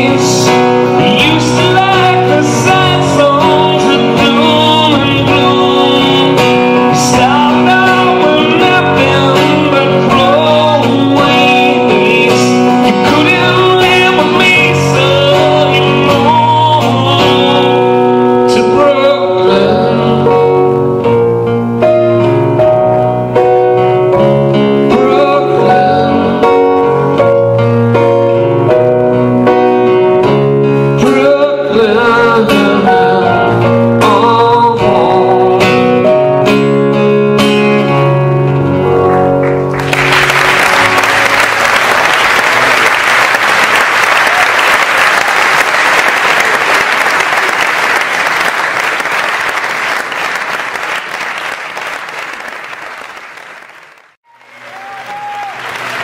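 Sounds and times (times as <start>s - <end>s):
man singing: 0.0s - 20.9s, 24.5s - 27.1s, 30.3s - 37.0s
acoustic guitar strumming: 0.0s - 43.3s
piano: 0.0s - 56.0s
audience applauding: 39.2s - 56.0s.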